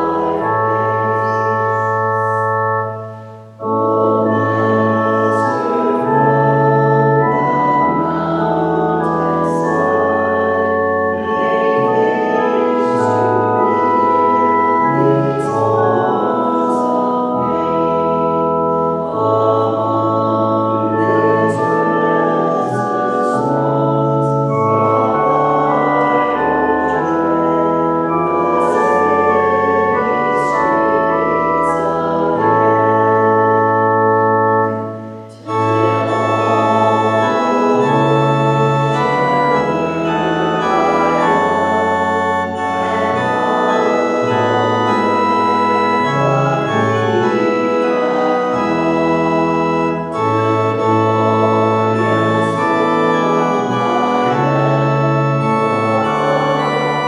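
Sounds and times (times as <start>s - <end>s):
church organ playing a hymn: 0.0s - 57.0s.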